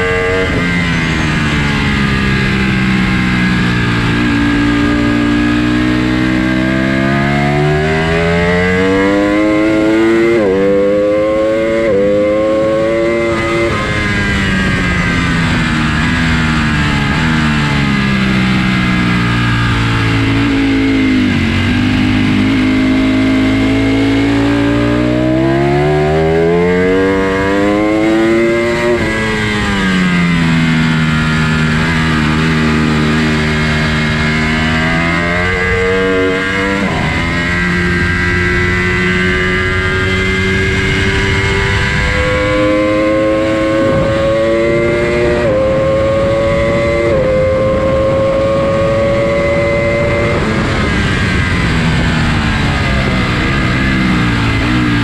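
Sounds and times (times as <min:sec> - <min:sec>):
motorcycle engine revving: 0:00.0 - 0:55.0
wind rushing: 0:20.0 - 0:55.0.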